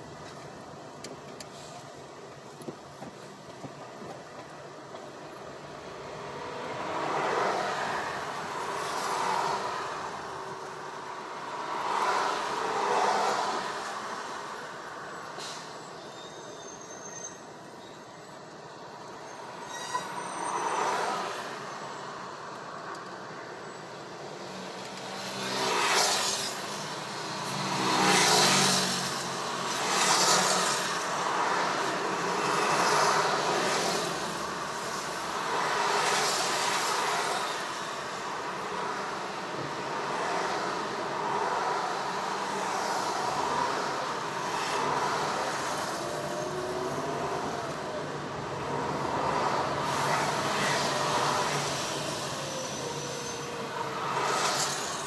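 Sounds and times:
traffic engines running: 20.6 - 55.0.

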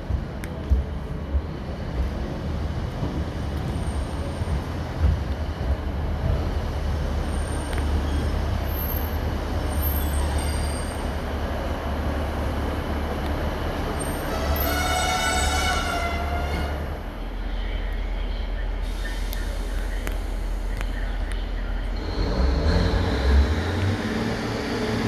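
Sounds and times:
diesel train rumbling: 0.0 - 25.0
wheels and brakes squealing: 7.2 - 11.2, 14.0 - 16.8.

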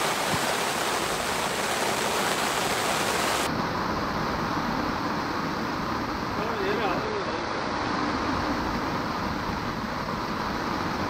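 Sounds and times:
heavy rain hissing: 0.0 - 3.5.

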